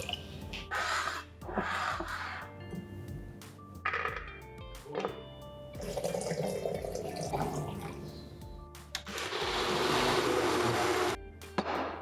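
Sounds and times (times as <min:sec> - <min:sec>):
soft background music: 0:00.0 - 0:12.0
water pouring into glass bowl: 0:05.8 - 0:08.0.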